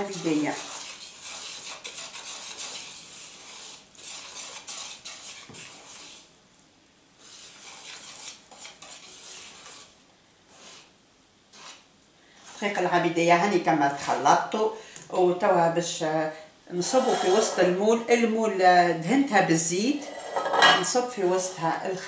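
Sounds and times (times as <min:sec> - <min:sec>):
whisk beating batter in bowl: 0:00.0 - 0:06.3, 0:07.2 - 0:09.9, 0:11.5 - 0:11.8.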